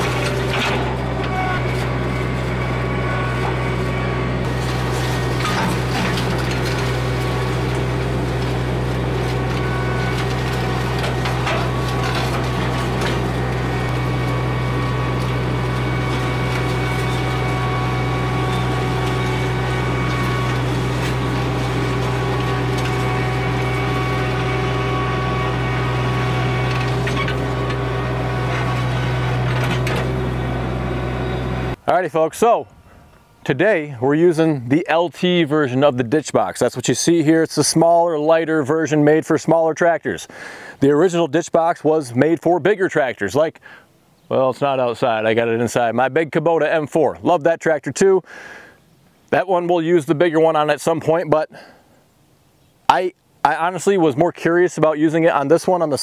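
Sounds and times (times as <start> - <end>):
tractor engine under load: 0.0 - 33.4.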